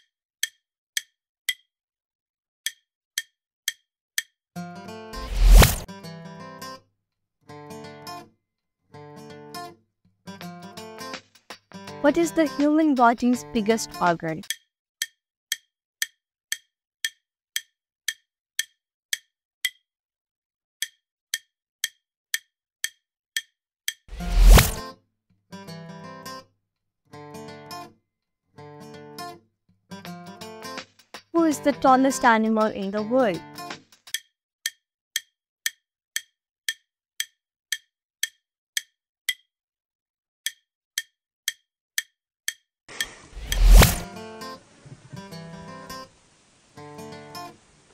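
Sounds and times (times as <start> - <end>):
countdown timer ticking: 11.8 - 19.8, 31.4 - 39.5
loud rushing sound: 43.2 - 44.1.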